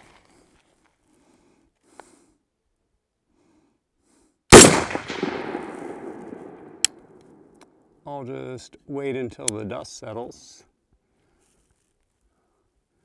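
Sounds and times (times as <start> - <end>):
rifle shot with echo: 4.5 - 7.5.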